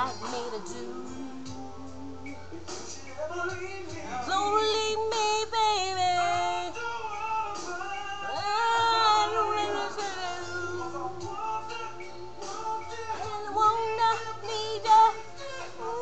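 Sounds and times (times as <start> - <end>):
woman singing: 0.0 - 2.4, 3.5 - 11.8, 12.7 - 16.0
recorded music with bass line: 0.0 - 16.0.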